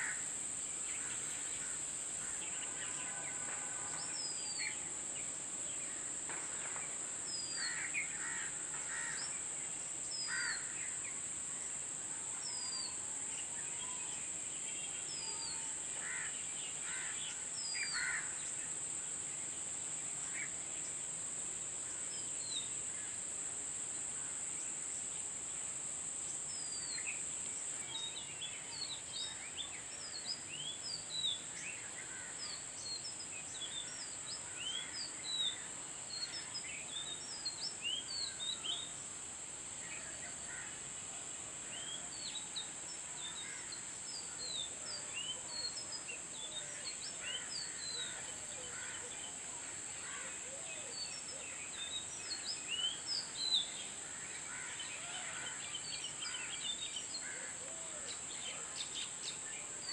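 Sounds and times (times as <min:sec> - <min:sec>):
steady high-pitched hiss: 0:00.0 - 0:59.9.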